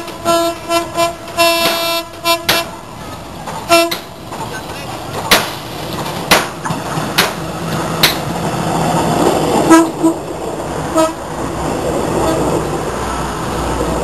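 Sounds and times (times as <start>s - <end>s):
train horn toots: 0.0s - 2.7s, 3.7s - 4.0s, 9.7s - 10.2s, 10.9s - 11.2s
diesel train rumbling past: 0.0s - 14.0s
sharp clacks: 3.4s - 8.3s.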